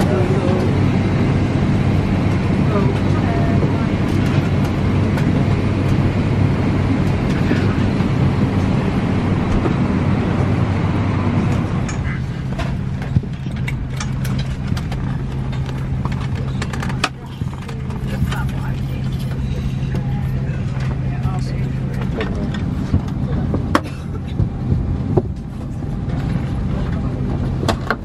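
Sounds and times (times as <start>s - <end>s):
air-conditioning hum: 0.0s - 28.0s
clicks and knocks of people moving: 2.2s - 6.1s, 7.0s - 8.1s, 11.5s - 28.0s.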